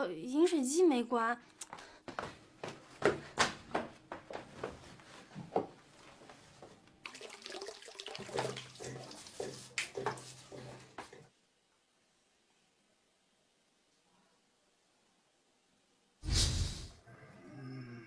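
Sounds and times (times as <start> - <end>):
water running into a mug: 7.0 - 11.0.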